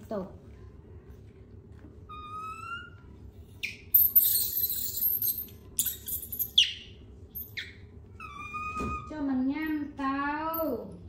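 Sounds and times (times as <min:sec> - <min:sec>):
monkey squeaks: 0:03.6 - 0:04.6, 0:05.8 - 0:09.2.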